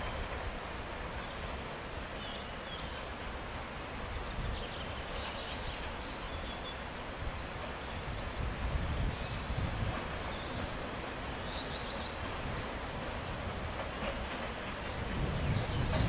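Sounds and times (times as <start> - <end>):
steady outdoor hiss: 0.0 - 16.0
wind rumble on microphone: 8.0 - 10.6, 14.9 - 16.0.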